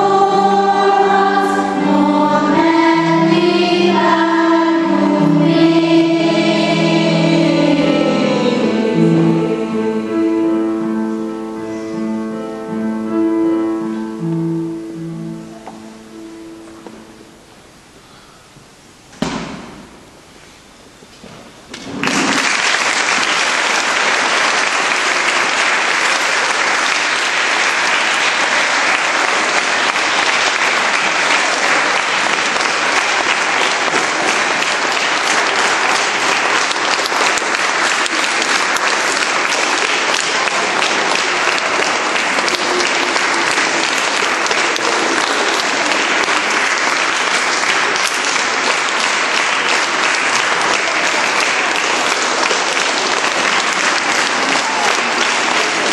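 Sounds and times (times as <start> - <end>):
children applauding: 21.8 - 55.9.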